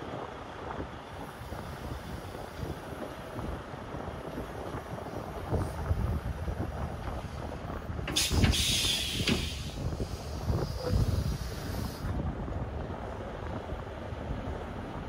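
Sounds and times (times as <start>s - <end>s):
diesel engine rumble: 0.0s - 15.0s
air brakes hissing: 8.0s - 12.2s.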